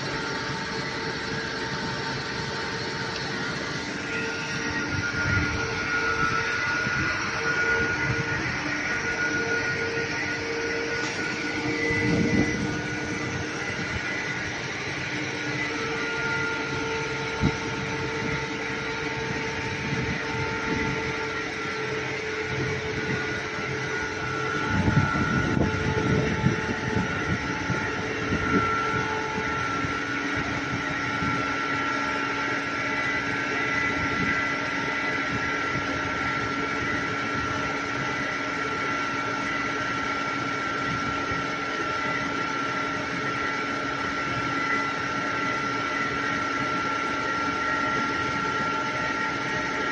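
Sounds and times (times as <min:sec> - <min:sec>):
high-pressure water jet spraying: 0:00.0 - 0:20.9
mechanical drone with whine: 0:00.0 - 0:49.9.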